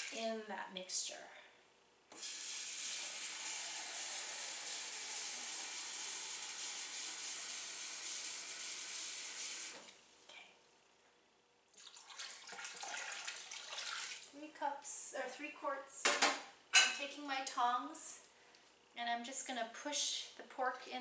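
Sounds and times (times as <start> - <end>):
faucet running water into glass cup: 2.2 - 9.8
water pouring into plastic tub: 11.7 - 14.3.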